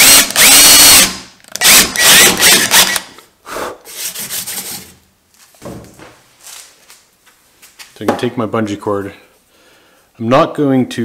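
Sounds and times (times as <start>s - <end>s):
cordless drill boring plastic: 0.0s - 3.0s.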